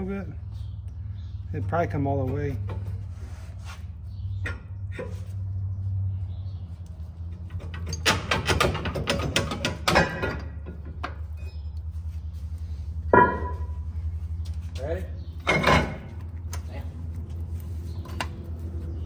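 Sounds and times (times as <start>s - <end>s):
steady low hum: 9.8s - 19.0s.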